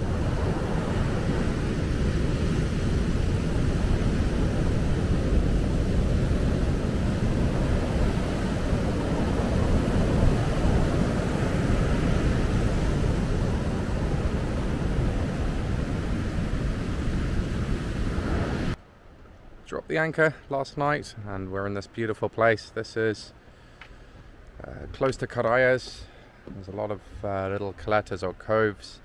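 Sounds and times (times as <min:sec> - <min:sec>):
surf breaking on beach: 0:00.0 - 0:18.8.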